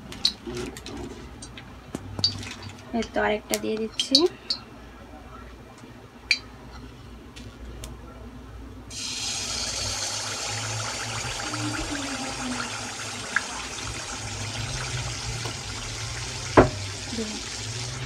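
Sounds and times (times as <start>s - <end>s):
batter sizzling in hot oil: 8.9s - 18.0s.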